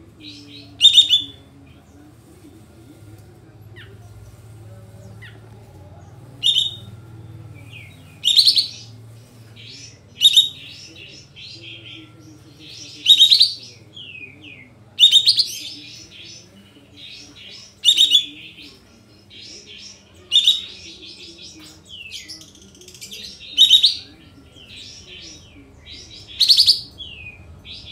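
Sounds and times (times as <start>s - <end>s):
bird singing sharp phrases: 0.2s - 2.0s, 3.8s - 27.9s
bird chattering notes: 6.4s - 7.0s, 7.7s - 8.9s, 9.6s - 12.0s, 12.6s - 14.4s.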